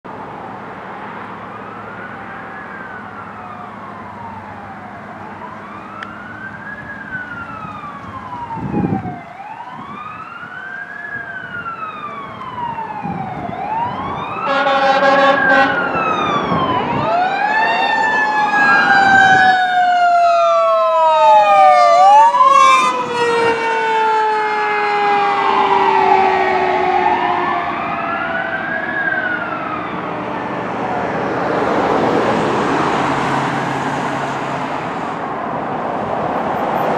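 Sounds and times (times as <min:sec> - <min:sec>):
fire engine siren wailing: 0:00.1 - 0:36.9
second siren: 0:01.4 - 0:35.3
horn blast: 0:14.4 - 0:16.0.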